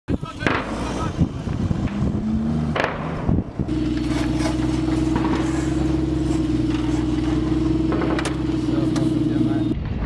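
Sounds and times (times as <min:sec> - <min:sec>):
armoured vehicle diesel engine: 0:00.1 - 0:09.8.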